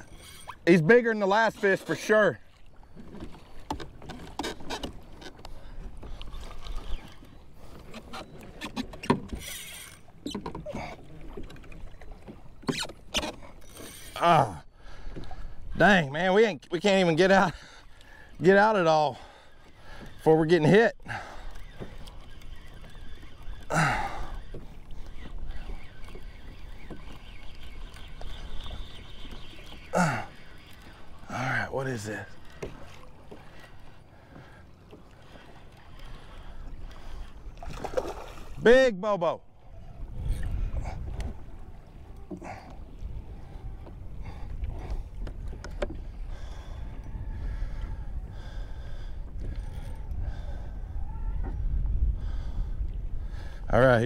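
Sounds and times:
water against kayak hull: 0.0 - 54.0
wind on microphone: 39.6 - 54.0.

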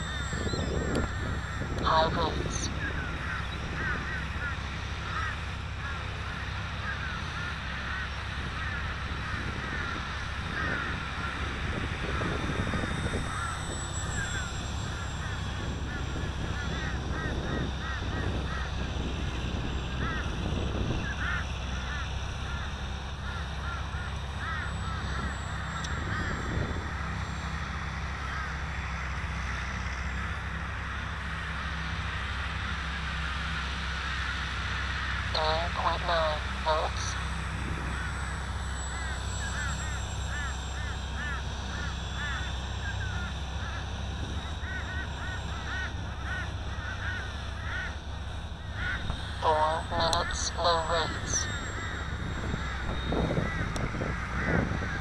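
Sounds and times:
wind rumble on microphone: 0.0 - 28.4, 36.7 - 38.4, 51.1 - 55.0
birds making harsh calls: 0.0 - 55.0.

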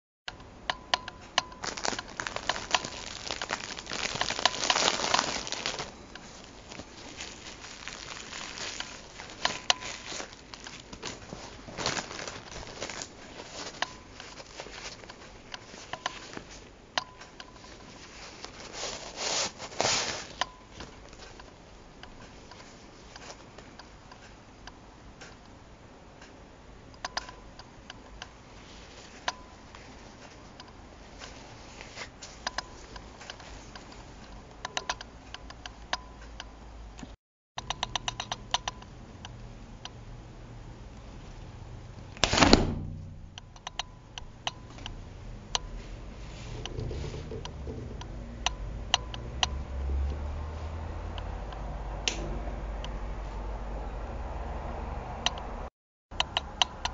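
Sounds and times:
umbrella fabric rustling: 1.6 - 16.8, 17.6 - 21.4, 28.5 - 34.3.

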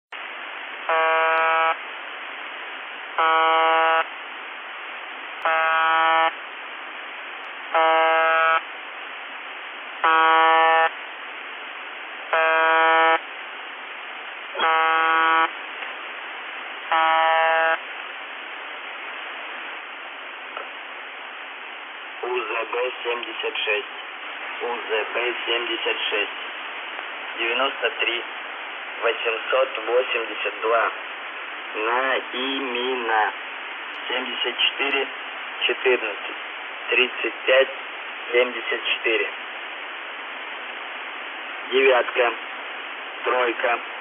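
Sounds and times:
radio static: 0.7 - 44.0
harsh radio buzz: 0.8 - 1.9, 3.1 - 4.2, 5.4 - 6.4, 7.0 - 8.7, 9.3 - 13.3, 14.0 - 33.4, 41.1 - 44.0.

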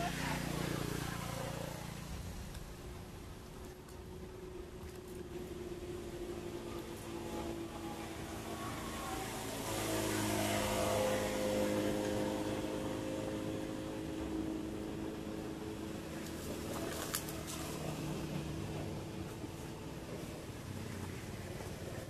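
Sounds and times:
vehicle engine running: 0.0 - 22.0.

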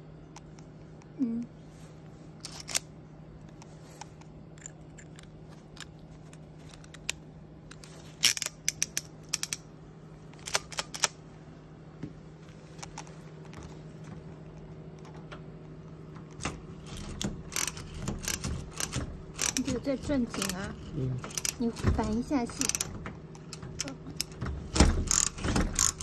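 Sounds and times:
ratchet screwdriver clicks: 7.8 - 9.6, 25.1 - 26.0.

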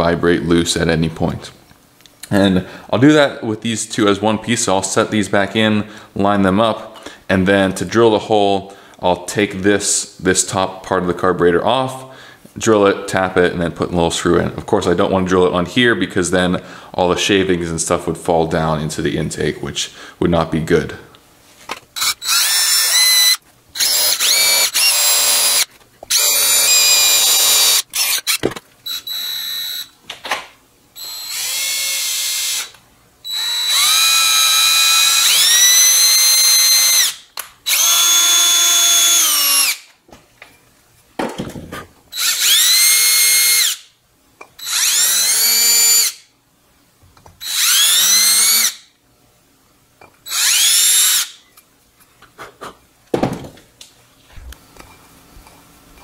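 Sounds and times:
power drill boring into metal: 22.0 - 29.9, 31.0 - 39.8, 42.2 - 43.8, 44.6 - 46.2, 47.4 - 48.8, 50.3 - 51.4.

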